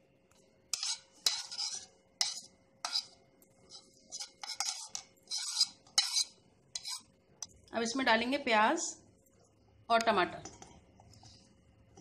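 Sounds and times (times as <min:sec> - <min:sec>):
spoon scraping and tapping plate: 0:00.7 - 0:03.2, 0:04.1 - 0:07.0.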